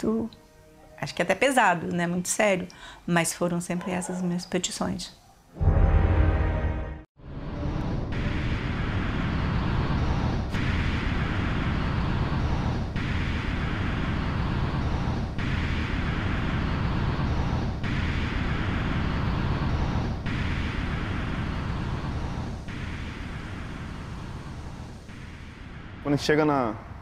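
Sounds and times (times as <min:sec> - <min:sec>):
low rumble: 0:05.6 - 0:27.0.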